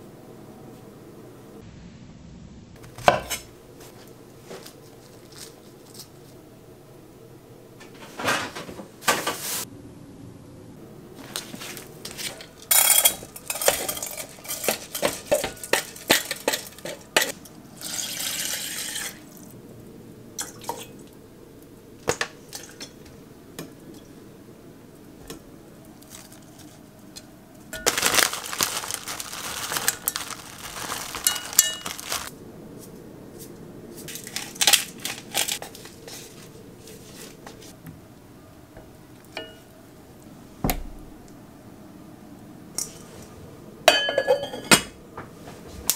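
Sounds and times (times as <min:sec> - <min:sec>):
dishes and utensils clattering: 0:12.1 - 0:19.2, 0:29.6 - 0:32.3, 0:43.9 - 0:45.0.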